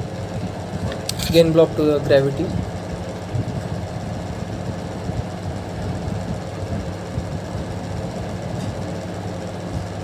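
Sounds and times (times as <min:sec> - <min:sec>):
low hum and rumble: 0:00.0 - 0:10.0.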